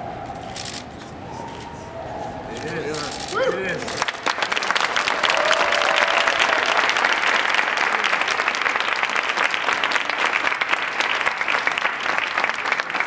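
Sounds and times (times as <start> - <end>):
crowd applauding: 2.6 - 13.0.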